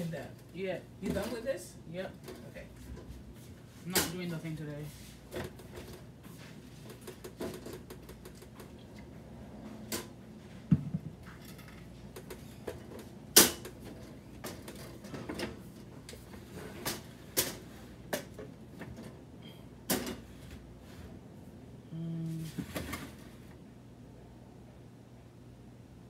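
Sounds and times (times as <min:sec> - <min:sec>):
low thump: 0:10.7 - 0:11.2.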